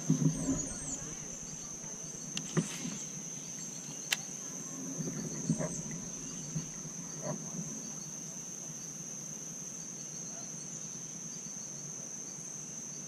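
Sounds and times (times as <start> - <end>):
faint chirps: 0.0 - 9.0
insects droning: 0.0 - 13.0
sharp click: 4.0 - 4.3.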